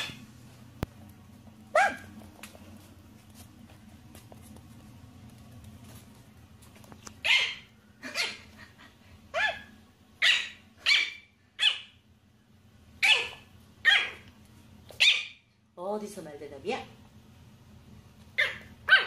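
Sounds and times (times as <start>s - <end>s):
puppy yapping: 0.0s - 0.2s, 1.7s - 2.2s, 7.2s - 8.5s, 9.3s - 12.0s, 13.0s - 14.3s, 14.9s - 15.5s, 18.4s - 19.0s.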